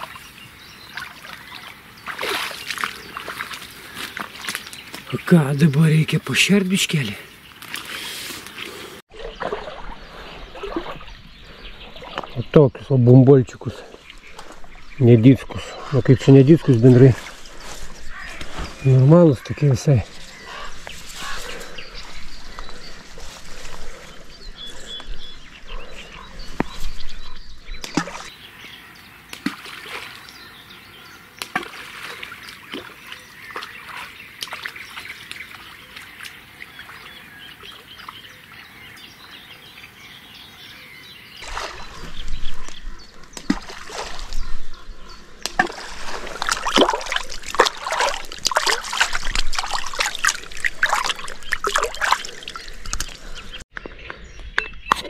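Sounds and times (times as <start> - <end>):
fish splashing at water surface: 0.9 - 4.7, 41.4 - 42.7, 43.3 - 44.4, 45.4 - 53.4
slurping gulps: 45.6 - 53.6.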